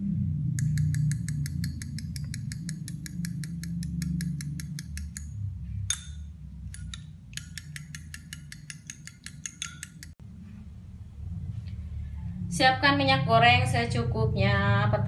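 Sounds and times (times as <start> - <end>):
fork beating eggs in glass bowl: 0.6 - 5.3, 5.9 - 10.2
sharp clink: 5.9 - 10.2.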